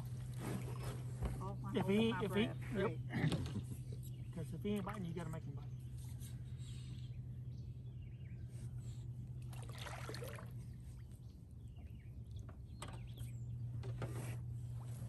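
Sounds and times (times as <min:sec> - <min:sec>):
water sloshing and splashing: 0:00.0 - 0:02.2, 0:09.4 - 0:11.2
steady low hum: 0:00.0 - 0:15.0.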